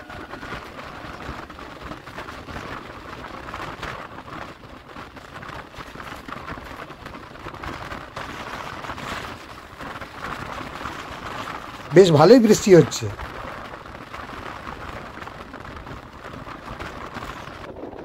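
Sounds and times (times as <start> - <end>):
train rumbling: 0.0 - 2.2
rain falling: 0.0 - 17.7.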